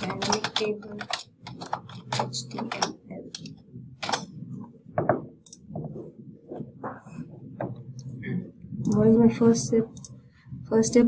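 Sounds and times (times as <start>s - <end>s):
computer keyboard keystrokes: 0.0s - 4.3s.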